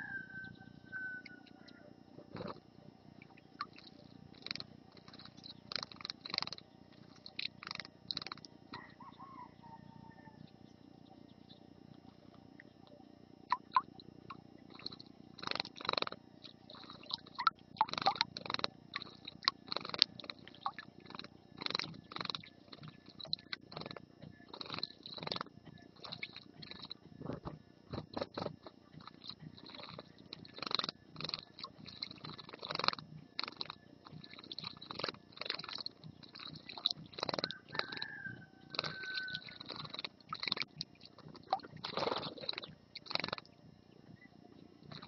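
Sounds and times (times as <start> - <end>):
bird splashing and fluttering: 3.6 - 8.4, 14.7 - 43.5.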